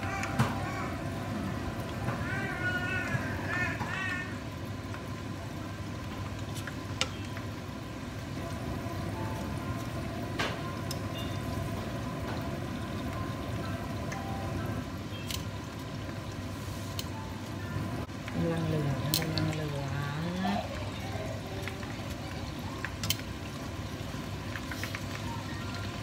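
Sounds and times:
food deep-frying in oil: 0.0 - 26.0.

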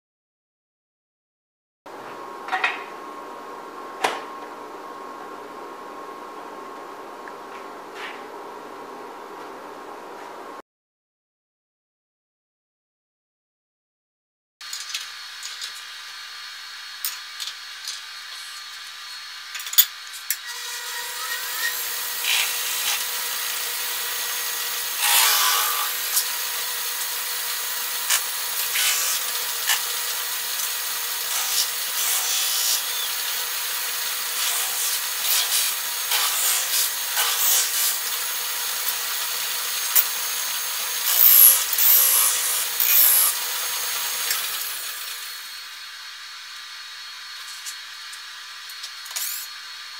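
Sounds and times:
lathe running: 20.5 - 49.9
tool scraping spinning brass: 41.0 - 44.9.

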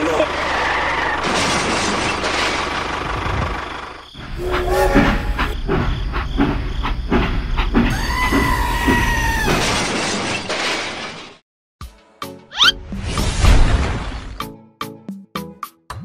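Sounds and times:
train whistle: 4.2 - 5.6.

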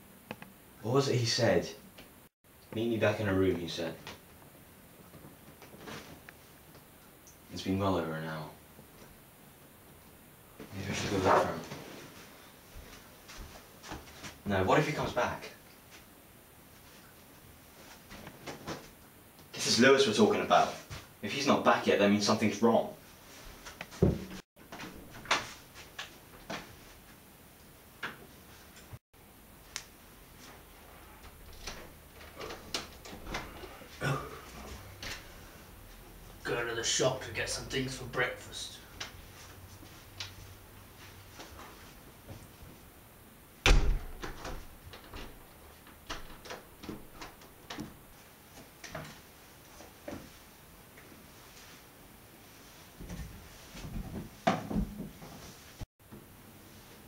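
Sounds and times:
room hiss: 0.0 - 57.0
faint sharp clicks and taps: 0.2 - 0.6
door slamming shut: 43.6 - 45.3.

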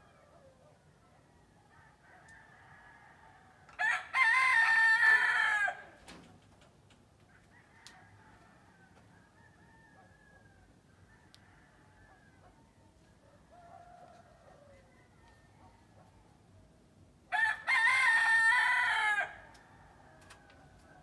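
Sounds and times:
distant rooster calls: 0.0 - 6.0, 7.3 - 16.5, 17.3 - 21.0
rooster crowing loudly: 2.1 - 6.0, 17.3 - 20.1.

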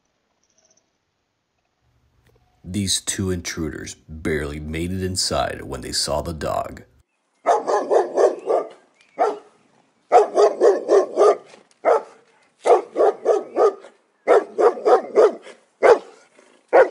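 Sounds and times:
dog barking: 7.4 - 16.9.

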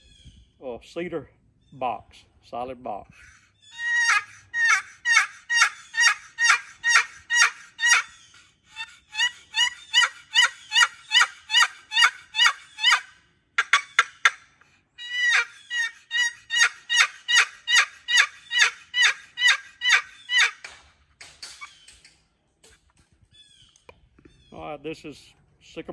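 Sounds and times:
turkey box call yelps: 3.2 - 20.7.

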